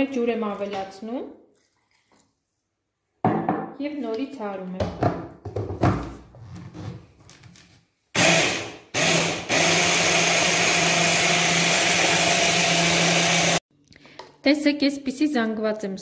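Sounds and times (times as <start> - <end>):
hand blender motor humming: 8.2 - 13.6.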